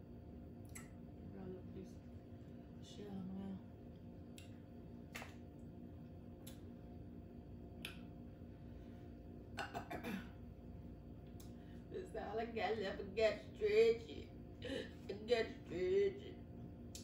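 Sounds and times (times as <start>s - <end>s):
low steady hum: 0.0s - 17.0s
mouth clicks and smacks: 0.6s - 0.9s, 4.3s - 5.4s, 6.4s - 6.6s, 7.8s - 8.1s.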